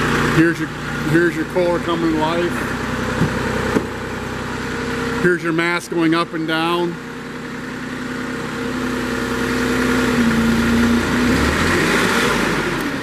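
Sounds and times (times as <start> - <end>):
forklift engine under hydraulic load: 7.0 - 13.0.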